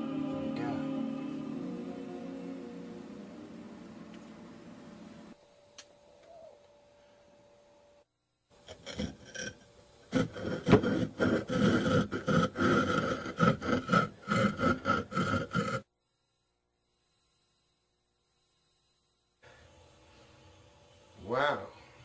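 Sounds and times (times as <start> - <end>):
harsh scraping strokes: 8.6 - 15.9.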